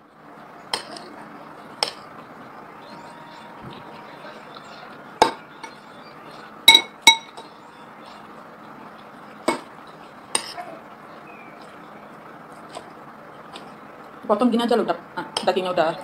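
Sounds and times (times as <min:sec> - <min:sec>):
cutlery clinking on ceramic bowl: 0:06.7 - 0:07.5.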